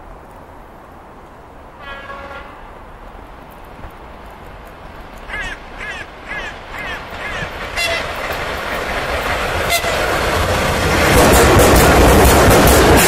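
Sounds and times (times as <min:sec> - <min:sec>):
train passing with rail noise: 0:00.0 - 0:13.0
locomotive horn toots: 0:01.8 - 0:02.8, 0:07.8 - 0:08.2, 0:09.6 - 0:10.1.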